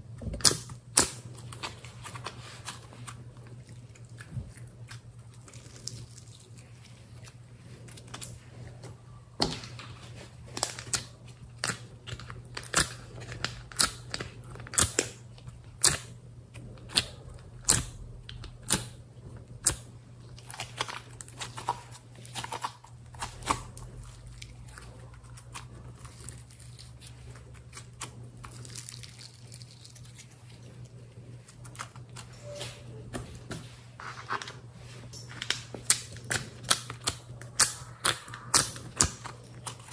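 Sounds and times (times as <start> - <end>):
slime squelching: 35.5 - 39.9.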